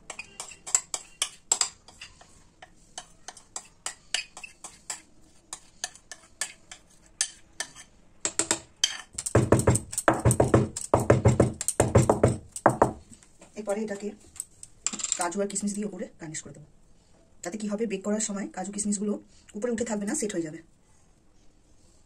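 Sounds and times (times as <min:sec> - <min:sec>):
spoon scraping a bowl: 0:00.0 - 0:08.0, 0:08.8 - 0:10.1.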